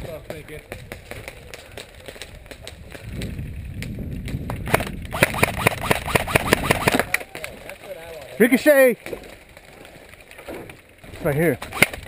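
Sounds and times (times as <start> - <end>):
airsoft gun shots: 4.7 - 7.1, 11.6 - 12.0.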